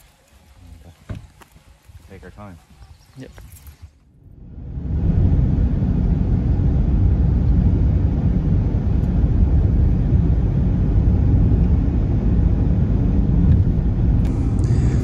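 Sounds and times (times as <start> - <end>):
car road and engine rumble: 3.5 - 15.0.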